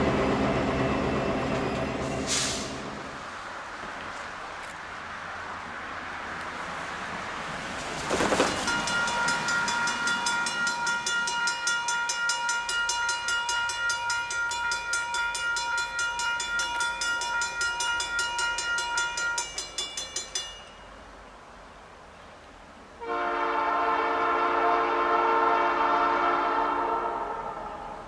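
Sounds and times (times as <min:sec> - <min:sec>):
crossing warning bell ringing: 0:08.5 - 0:21.5.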